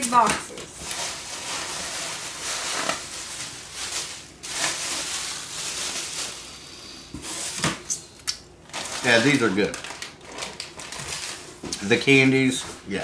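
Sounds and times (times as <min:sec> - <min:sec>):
snack packaging crinkling: 0:00.8 - 0:06.6, 0:08.2 - 0:12.4.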